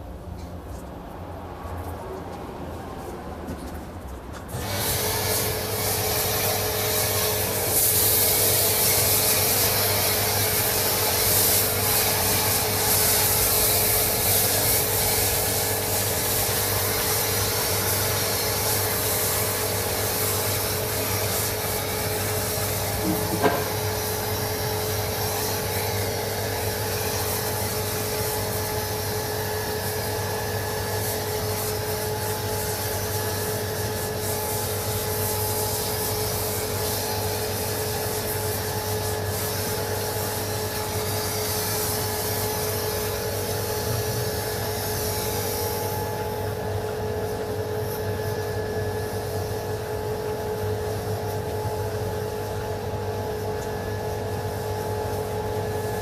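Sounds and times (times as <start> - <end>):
pressure washer jet hissing: 4.5 - 46.5.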